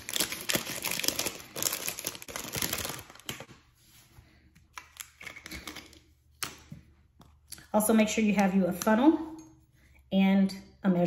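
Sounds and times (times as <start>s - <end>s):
plastic packaging crinkling: 0.0s - 3.5s.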